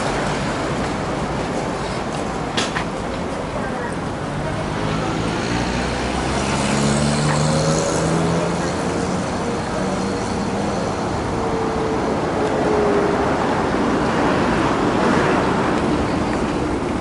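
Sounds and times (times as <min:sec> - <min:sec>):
road traffic rush: 0:00.0 - 0:17.0
vehicle passing by: 0:04.5 - 0:10.7.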